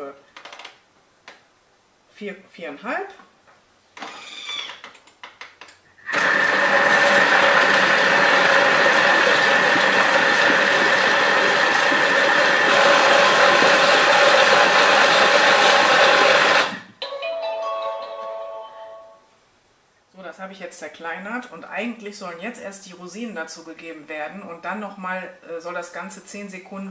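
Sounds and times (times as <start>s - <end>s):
food processor blade whirring: 6.1s - 16.9s.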